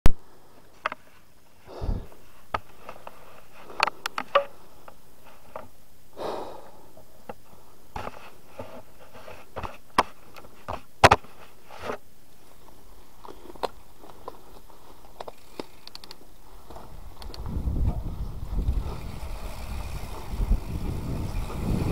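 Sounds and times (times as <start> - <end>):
bike rattling over bumps: 13.3 - 21.9
tyres rolling on gravel: 13.3 - 21.9.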